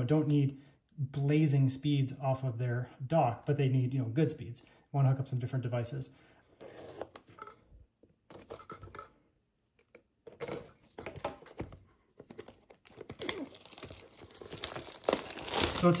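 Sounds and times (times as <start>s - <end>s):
knife cutting plastic wrap: 12.8s - 16.0s.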